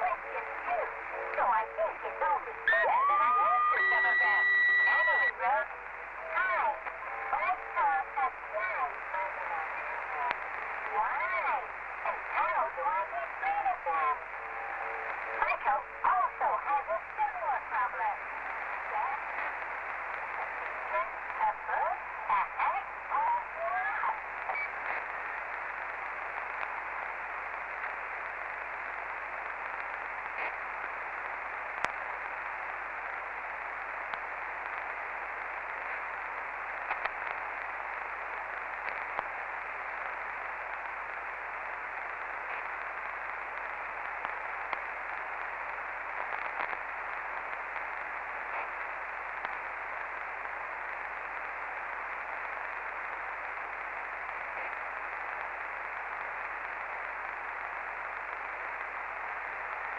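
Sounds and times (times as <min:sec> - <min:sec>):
radio static hiss: 0:00.0 - 0:59.9
faint clicks: 0:31.8 - 0:32.0, 0:36.8 - 0:37.7, 0:38.8 - 0:39.3, 0:46.2 - 0:49.7.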